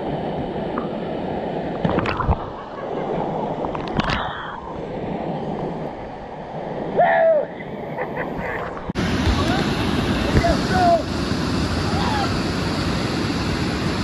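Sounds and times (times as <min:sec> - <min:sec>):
waterfall rushing into pool: 0:08.9 - 0:14.0.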